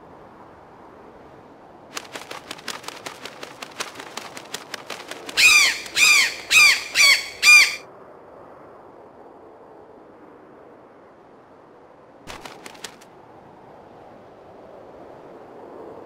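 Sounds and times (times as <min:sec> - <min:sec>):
macaw squawking: 0:05.3 - 0:07.8.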